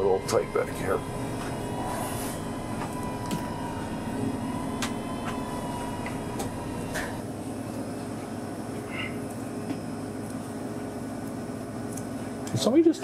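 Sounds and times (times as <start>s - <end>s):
thin high whine: 0.0s - 10.1s
equipment hum: 0.0s - 12.8s.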